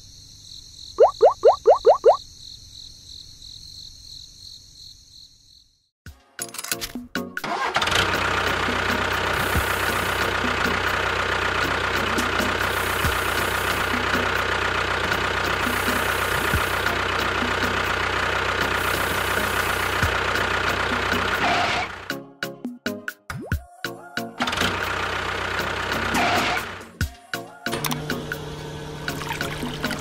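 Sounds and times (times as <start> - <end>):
model tractor engine running: 7.4 - 22.0, 24.4 - 26.8.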